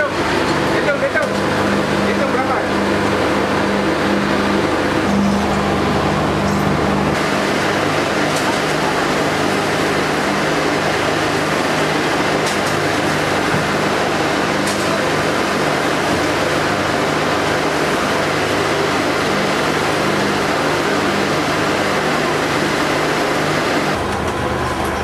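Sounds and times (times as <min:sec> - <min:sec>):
boat engine running: 0:00.0 - 0:25.0
rushing noise: 0:00.8 - 0:24.1.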